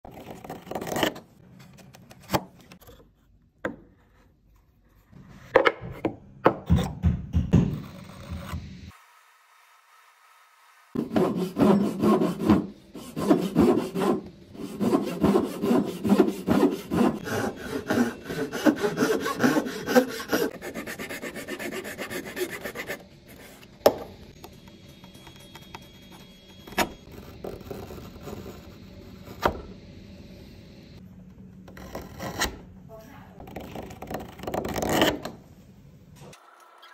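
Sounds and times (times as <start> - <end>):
hand saw cutting wood: 11.0 - 23.0
chisel scraping wood: 11.0 - 23.6.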